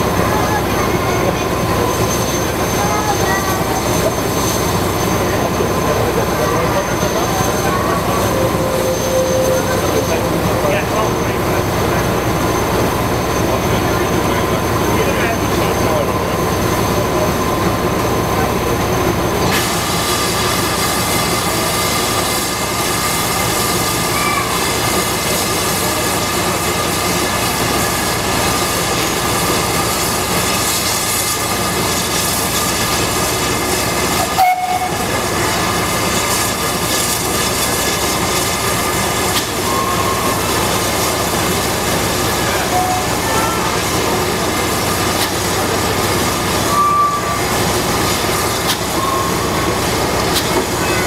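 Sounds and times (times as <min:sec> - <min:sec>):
steam locomotive hissing: 0:00.0 - 0:51.0.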